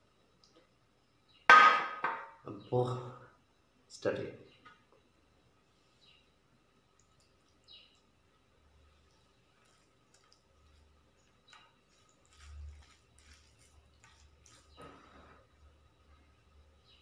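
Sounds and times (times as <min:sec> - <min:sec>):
fingers mixing food on steel plate: 0:08.9 - 0:15.2.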